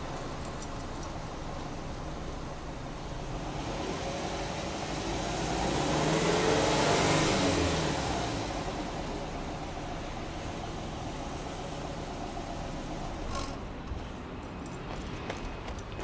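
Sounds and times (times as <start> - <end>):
car engine revving: 3.2 - 13.6.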